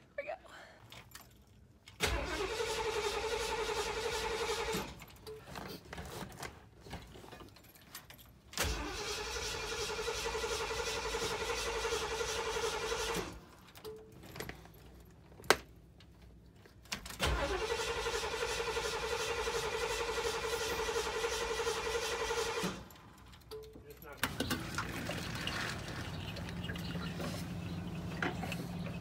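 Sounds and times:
starter cranking engine: 0:02.0 - 0:05.1, 0:08.6 - 0:13.5, 0:17.2 - 0:23.5.

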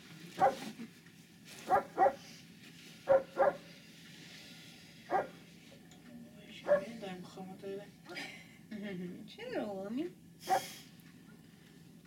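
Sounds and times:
dog barking: 0:00.4 - 0:00.6, 0:01.7 - 0:02.2, 0:03.1 - 0:03.6, 0:05.1 - 0:05.4, 0:06.6 - 0:06.9, 0:10.5 - 0:10.7.

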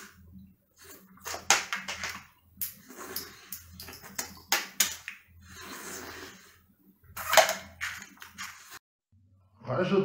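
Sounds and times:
slurping snails from shells: 0:02.6 - 0:06.6.

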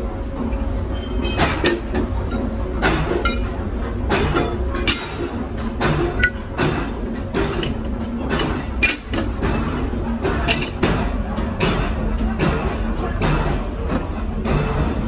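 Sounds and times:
low machine hum: 0:00.0 - 0:15.0
metallic clinks and knocks: 0:06.1 - 0:06.7.

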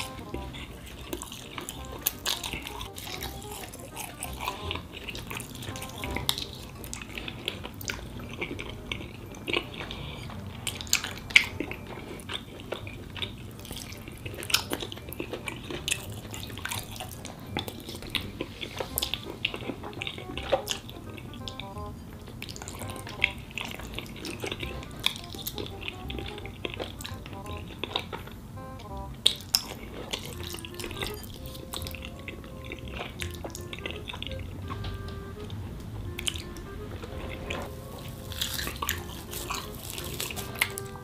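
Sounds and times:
wet chewing and mouth smacks: 0:00.0 - 0:34.8, 0:35.4 - 0:41.0.

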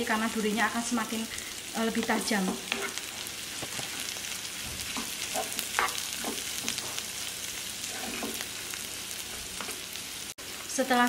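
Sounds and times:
food sizzling in oil: 0:00.0 - 0:11.0
spatula scraping pan: 0:02.2 - 0:07.1, 0:07.8 - 0:08.6.

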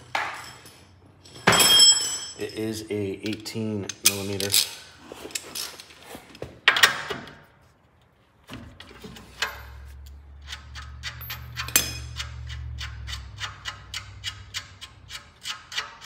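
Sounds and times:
metal clatter: 0:08.8 - 0:16.0
wrench clicking on metal nut: 0:09.4 - 0:16.0
sharp ticks: 0:10.4 - 0:16.0.

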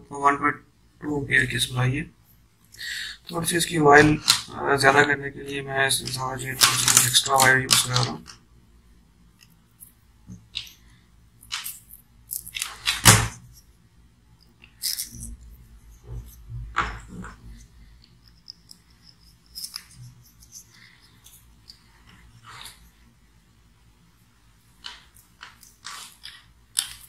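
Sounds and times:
electrical cable rustling and clicking: 0:06.0 - 0:08.4, 0:09.4 - 0:13.7, 0:14.4 - 0:23.0, 0:24.7 - 0:27.0.

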